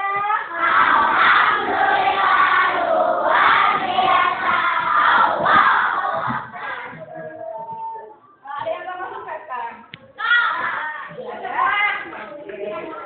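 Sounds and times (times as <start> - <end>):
children chanting in unison: 0.5 - 7.0.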